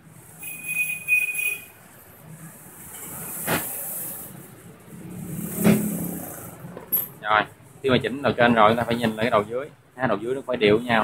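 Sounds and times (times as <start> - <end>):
high steady squeal: 0.4 - 1.8
motor vehicle passing: 3.1 - 7.2.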